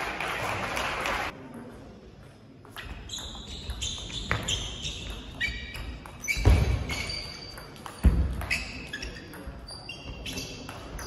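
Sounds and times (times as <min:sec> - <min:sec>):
shoes squeaking on floor: 0:02.8 - 0:11.0.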